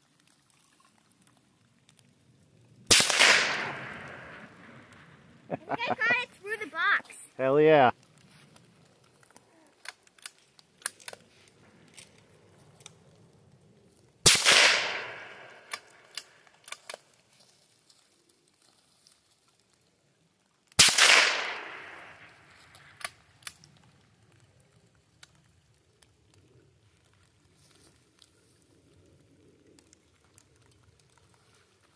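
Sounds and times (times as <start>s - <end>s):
rifle shots echoing: 2.9s - 4.8s, 14.2s - 16.1s, 20.8s - 22.4s.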